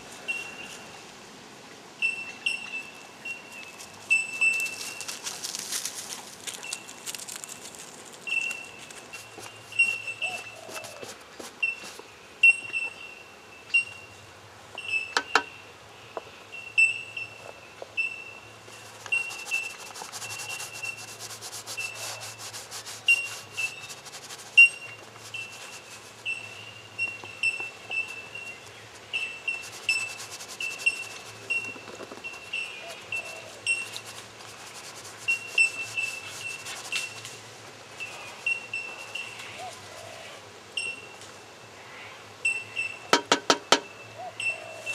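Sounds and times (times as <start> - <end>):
paintbrush scrubbing on board: 8.8 - 12.0, 18.8 - 26.6, 27.6 - 39.2.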